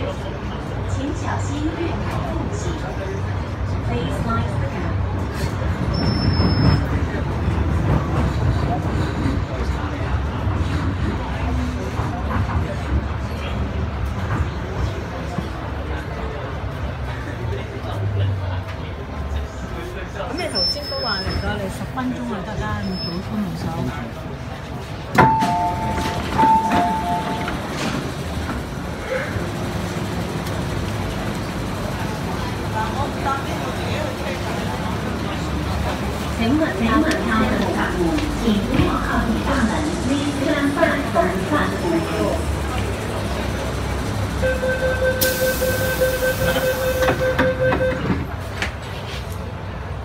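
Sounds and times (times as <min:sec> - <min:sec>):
hum of stopped train: 0:00.0 - 0:50.0
train doors sliding open: 0:24.7 - 0:32.6, 0:45.2 - 0:49.5
two-tone door chime: 0:25.2 - 0:27.6
door-closing warning tone: 0:25.2 - 0:27.8, 0:44.4 - 0:48.3.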